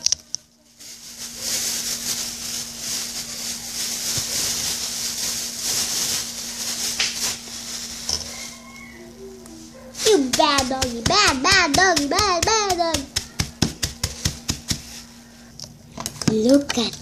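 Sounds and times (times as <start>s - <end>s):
steady low hum: 0.1s - 17.0s
plastic bag crinkling: 0.7s - 9.0s, 9.7s - 15.2s.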